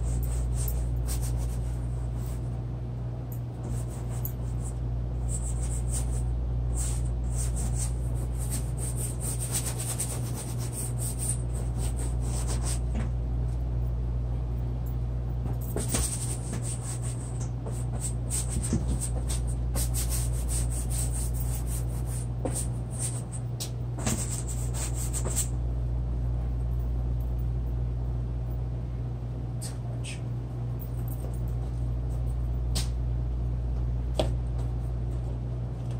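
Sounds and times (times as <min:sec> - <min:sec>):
low steady hum: 0:00.0 - 0:35.9
drawing tool scratching on paper: 0:03.6 - 0:04.7, 0:05.3 - 0:12.8, 0:24.0 - 0:25.5.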